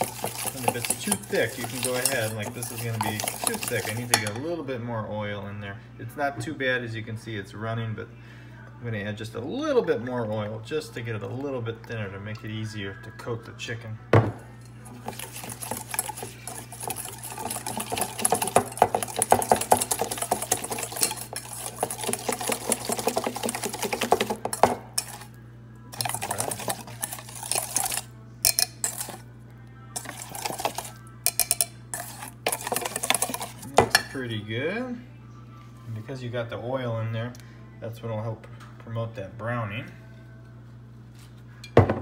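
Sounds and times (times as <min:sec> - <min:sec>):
whisk rattling in metal bowl: 0:00.0 - 0:04.4, 0:14.8 - 0:29.2, 0:30.0 - 0:34.2.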